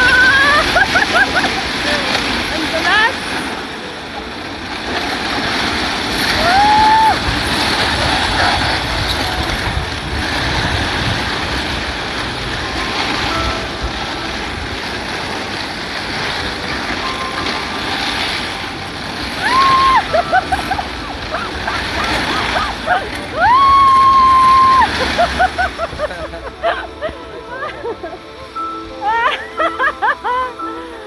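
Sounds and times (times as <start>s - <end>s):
metal roller slide rumbling clatter: 0.0s - 31.0s
person crying out: 6.4s - 7.2s, 19.4s - 20.8s, 22.6s - 25.4s.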